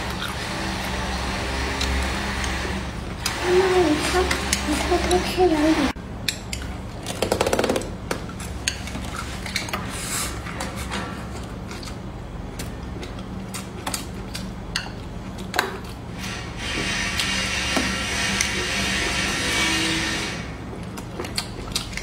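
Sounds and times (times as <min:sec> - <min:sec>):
chewing food: 0:11.3 - 0:16.1, 0:20.6 - 0:22.0.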